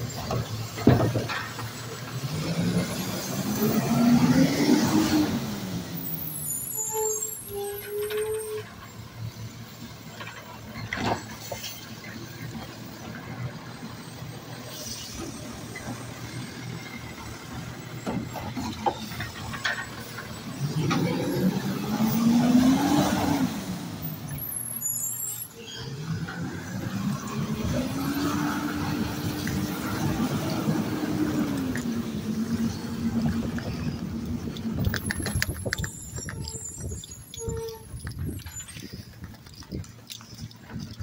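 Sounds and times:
engine revving: 0:02.1 - 0:06.1, 0:20.5 - 0:24.1, 0:25.9 - 0:35.6
hydraulic arm squeal: 0:06.0 - 0:09.8, 0:24.3 - 0:32.0, 0:34.8 - 0:39.1
diesel engine running: 0:26.2 - 0:41.0.

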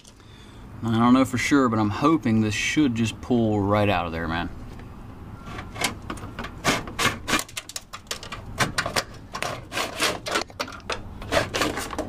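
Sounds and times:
cable scraping against plastic: 0:05.5 - 0:12.0.

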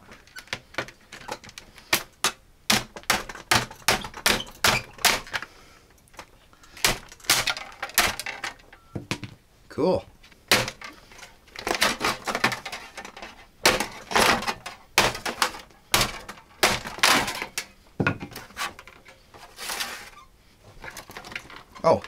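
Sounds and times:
plastic case cracking and snapping: 0:06.1 - 0:08.7, 0:10.5 - 0:17.7.

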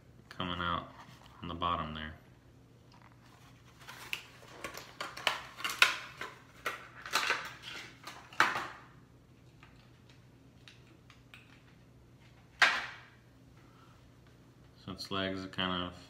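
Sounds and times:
plastic packaging crinkling: 0:03.0 - 0:08.6.

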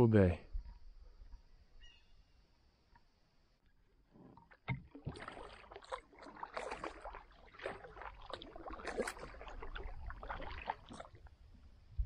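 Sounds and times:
paddle pulling through water: 0:04.0 - 0:11.9
splashes and drips on hull: 0:04.3 - 0:11.6.

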